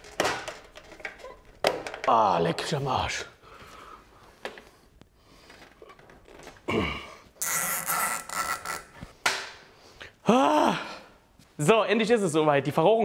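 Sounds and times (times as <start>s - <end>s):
metal pipe scraping: 7.4s - 9.1s.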